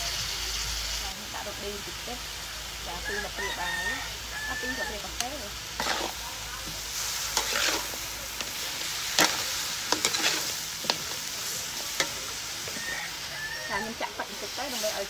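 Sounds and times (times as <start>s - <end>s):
chicken sizzling in a wok: 0.0s - 15.0s
metal spatula clanking on pan: 9.1s - 11.2s.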